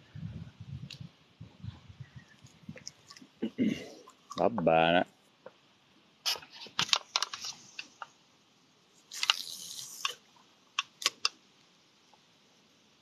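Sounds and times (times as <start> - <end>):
short hiss: 6.2 - 8.1, 9.0 - 11.4.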